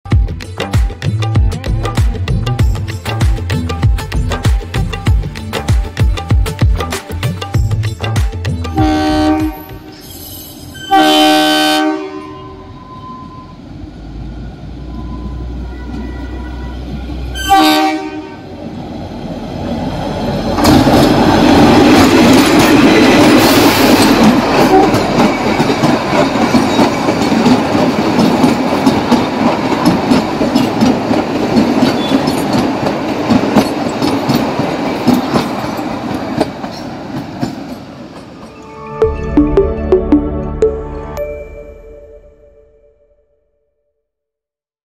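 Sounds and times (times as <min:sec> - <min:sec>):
train horn: 0:08.8 - 0:10.0, 0:10.7 - 0:13.5, 0:14.8 - 0:18.6, 0:24.6 - 0:25.1
train wheels clattering over rails: 0:20.2 - 0:38.5.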